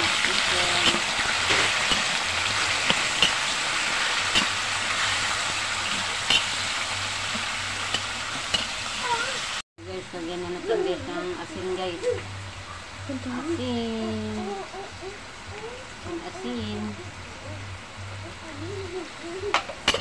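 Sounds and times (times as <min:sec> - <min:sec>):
chicken sizzling in oil: 0:00.0 - 0:09.6.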